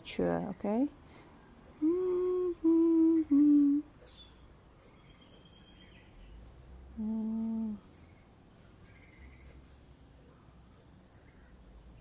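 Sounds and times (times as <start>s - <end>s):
woman humming: 1.8s - 4.0s, 7.0s - 7.9s.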